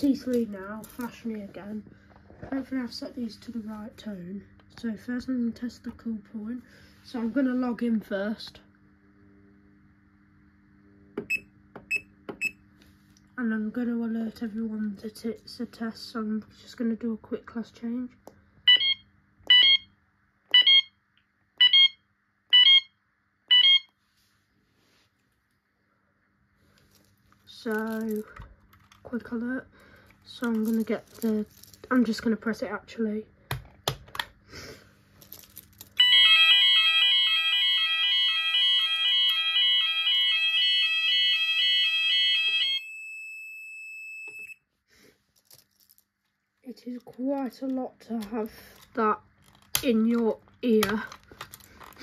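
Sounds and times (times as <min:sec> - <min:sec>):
fire alarm two-pitch beeps: 0:18.7 - 0:19.9, 0:20.5 - 0:21.0, 0:21.6 - 0:23.9, 0:36.0 - 0:44.6.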